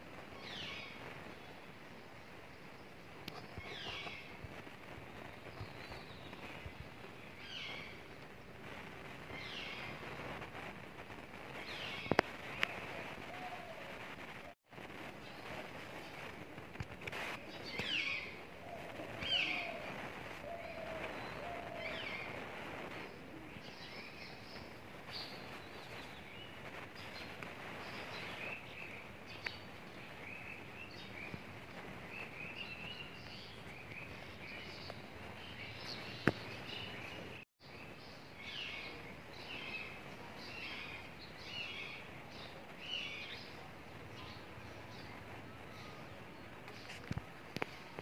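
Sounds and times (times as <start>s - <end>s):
birds chirping: 0.0s - 48.0s
steady background hiss: 0.0s - 48.0s.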